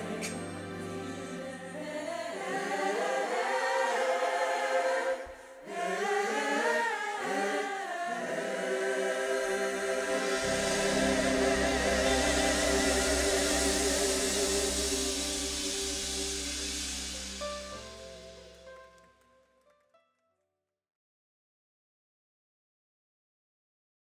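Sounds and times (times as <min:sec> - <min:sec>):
gospel choir singing: 0:00.0 - 0:18.6
low accompaniment: 0:09.6 - 0:19.3.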